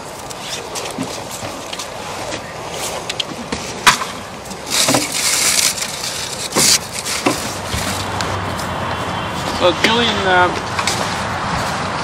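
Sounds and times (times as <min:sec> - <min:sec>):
cardboard rustling and scraping: 0:04.5 - 0:08.8.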